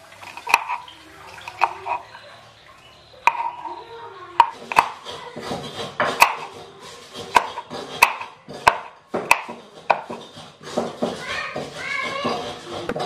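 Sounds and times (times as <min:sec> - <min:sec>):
knife chopping on wooden board: 0:00.4 - 0:00.8, 0:01.5 - 0:02.0, 0:03.3 - 0:03.6, 0:04.4 - 0:13.0.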